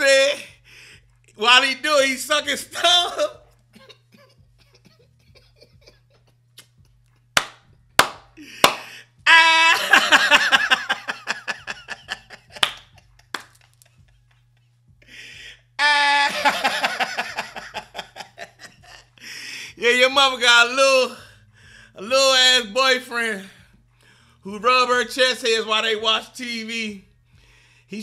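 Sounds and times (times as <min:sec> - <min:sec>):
man laughing hard: 0:02.8 - 0:07.3, 0:08.4 - 0:19.4
sharp smacks: 0:07.4 - 0:08.9
steady low hum: 0:10.2 - 0:15.8.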